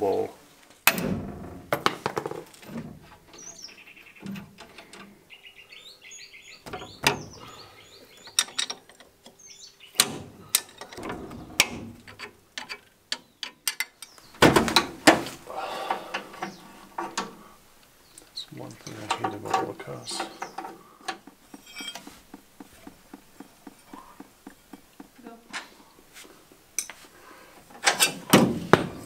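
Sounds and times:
small birds chirping: 0:03.1 - 0:12.0, 0:13.0 - 0:14.4, 0:15.5 - 0:26.1
spanners clicking on metal: 0:08.3 - 0:09.4, 0:18.8 - 0:25.1.

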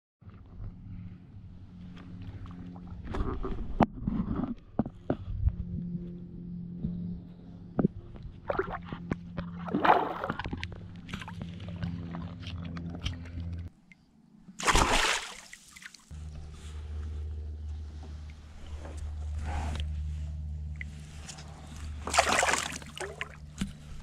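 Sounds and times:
steady low hum: 0:00.2 - 0:24.0
water splashing and sloshing: 0:07.8 - 0:16.2, 0:20.6 - 0:24.0.

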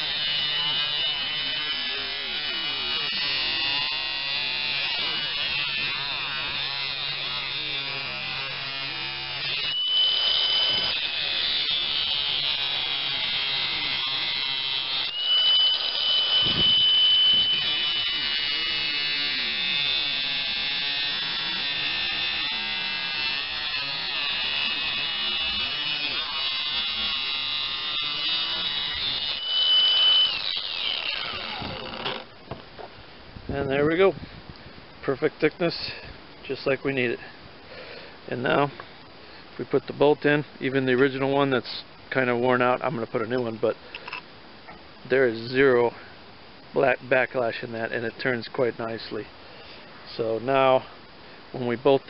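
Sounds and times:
angle grinder grinding metal: 0:00.0 - 0:32.6.

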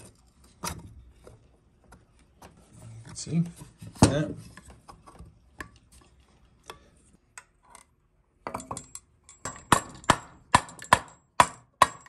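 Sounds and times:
rubber mallet knocking metal: 0:09.4 - 0:12.0.

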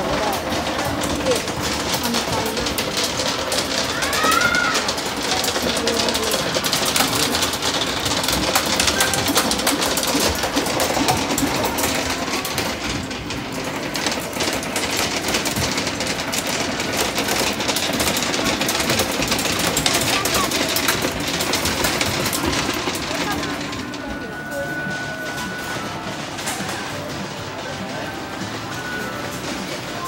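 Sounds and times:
mechanical clatter of arcade machines: 0:00.0 - 0:30.0
rapid clicking: 0:00.0 - 0:30.0.

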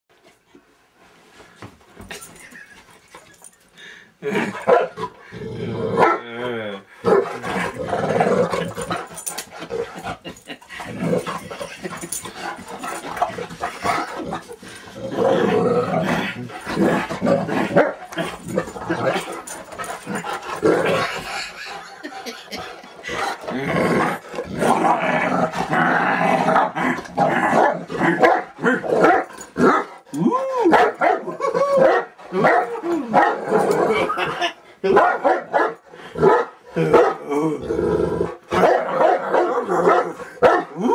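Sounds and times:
dog play-growling: 0:07.0 - 0:30.2, 0:32.2 - 0:34.8
dog barking: 0:27.6 - 0:29.8, 0:30.7 - 0:33.4, 0:34.9 - 0:37.2, 0:38.6 - 0:40.8.

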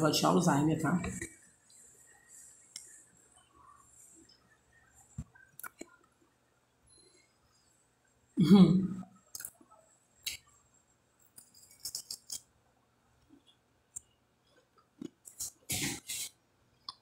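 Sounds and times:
cracker crunching being chewed: 0:11.3 - 0:12.5.

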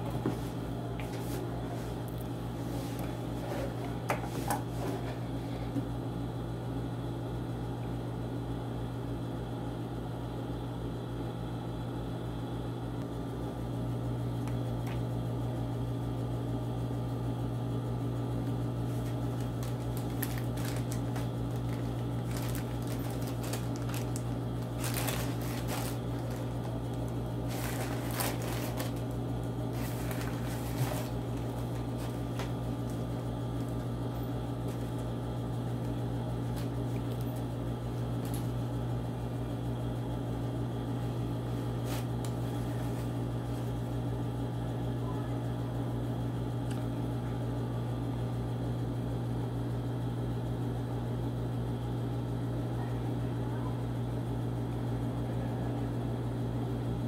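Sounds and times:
sewing machine motor hum: 0:18.4 - 0:38.7
fabric being handled: 0:18.9 - 0:29.1, 0:29.7 - 0:32.6.

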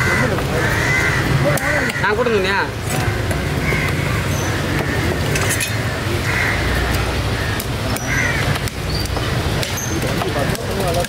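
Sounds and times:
distant voices calling: 0:00.0 - 0:11.0
low rumble of road traffic: 0:00.0 - 0:11.0.

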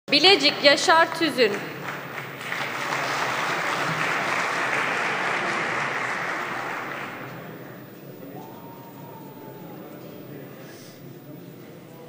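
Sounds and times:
applause in a large hall: 0:01.0 - 0:08.6.

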